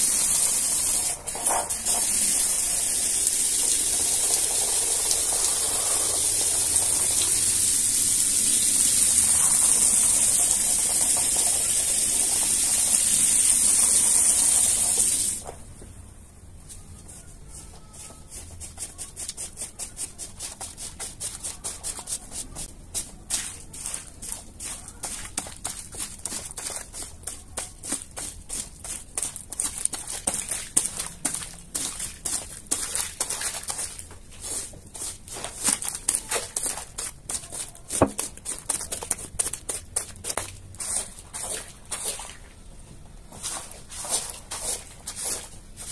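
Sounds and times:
broom scrubbing wet rug: 0.0s - 7.7s, 18.2s - 42.5s, 43.3s - 45.9s.

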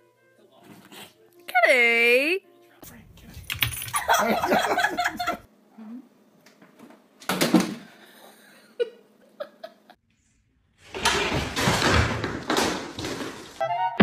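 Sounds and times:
cat scrambling on wooden shelf: 10.9s - 13.6s.

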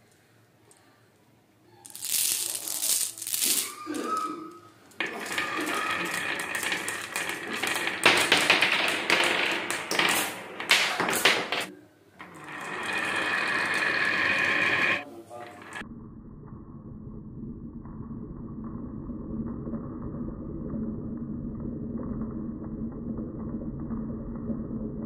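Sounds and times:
marbles clicking together: 1.8s - 4.3s, 4.9s - 15.8s
marbles rolling on wooden ramp: 1.8s - 15.8s.

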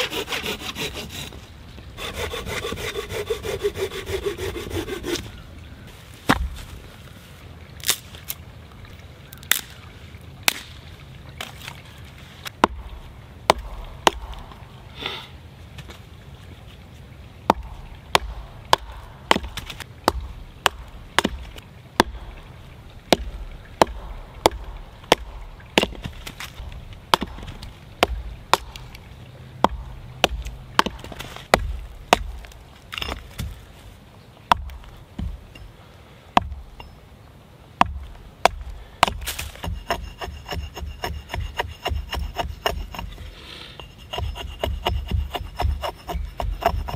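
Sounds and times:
axe chopping firewood: 6.3s - 6.6s, 12.6s - 14.6s, 17.5s - 29.0s, 29.6s - 33.6s, 34.5s - 35.7s, 36.4s - 37.0s, 37.8s - 46.9s.

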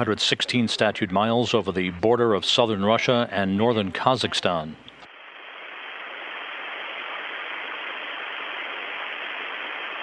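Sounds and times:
radio static hiss: 0.0s - 10.0s.

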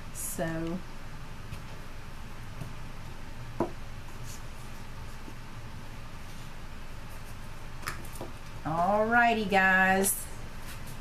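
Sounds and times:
low room hum: 0.0s - 11.0s
faint handling rustles: 6.1s - 8.4s.

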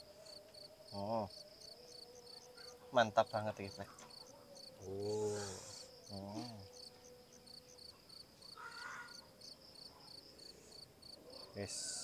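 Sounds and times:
crickets chirping: 0.0s - 12.0s
person humming low: 4.8s - 6.7s.

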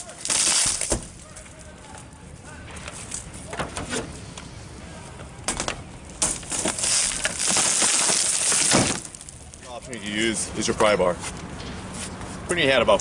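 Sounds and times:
windshield glass crackling: 0.0s - 1.4s, 5.5s - 10.0s.

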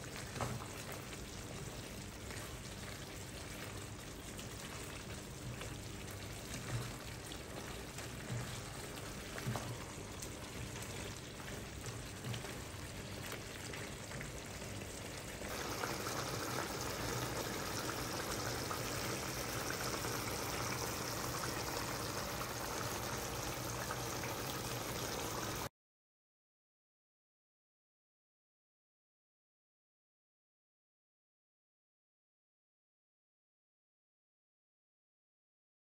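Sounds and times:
food sizzling in a frying pan: 0.0s - 25.7s
wooden spatula stirring and knocking: 6.3s - 10.0s.

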